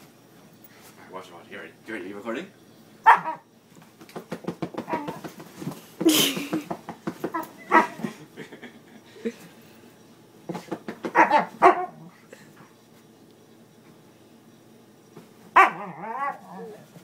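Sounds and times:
dog barking and whining: 3.0s - 3.5s, 4.8s - 5.2s, 7.3s - 8.0s, 11.0s - 12.2s, 15.5s - 17.0s.

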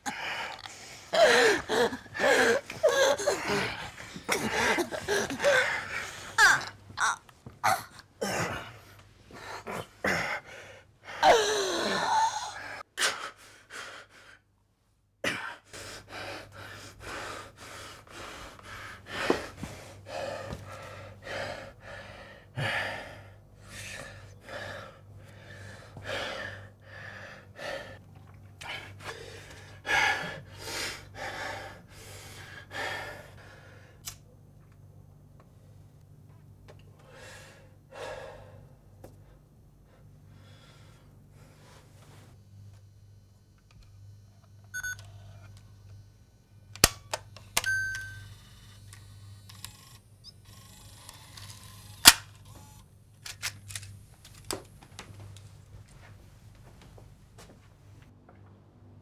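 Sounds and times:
person gasping for breath: 0.0s - 14.3s.

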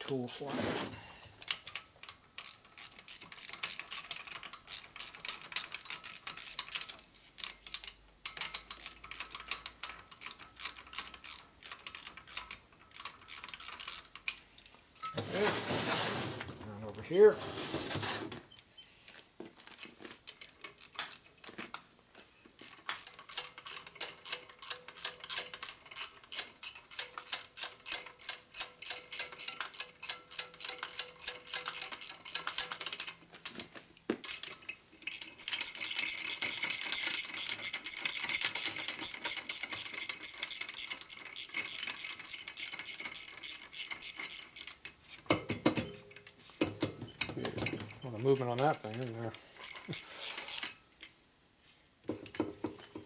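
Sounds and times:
ratchet clicking rapidly: 2.4s - 6.9s, 8.3s - 14.4s, 22.6s - 33.1s, 35.1s - 44.8s.

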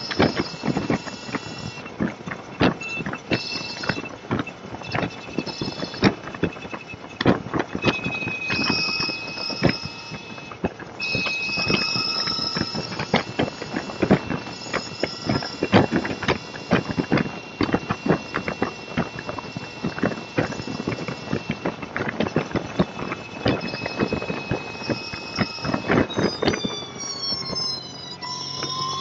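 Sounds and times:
thin high whine: 0.0s - 29.0s.

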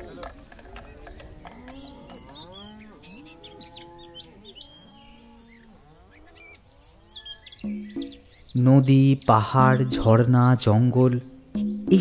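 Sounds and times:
cattle mooing: 0.0s - 8.2s
birds chirping faintly: 0.0s - 12.0s.

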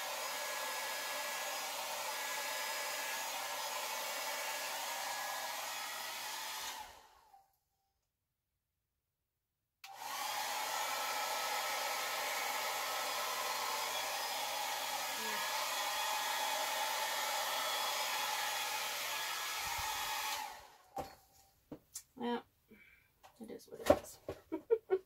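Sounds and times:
hair dryer running: 0.0s - 7.3s, 9.8s - 21.0s.

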